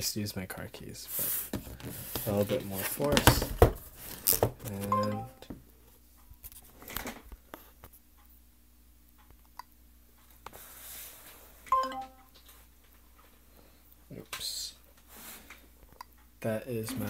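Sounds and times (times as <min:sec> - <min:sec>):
phone alert tone: 0:04.9 - 0:05.4, 0:11.7 - 0:12.3.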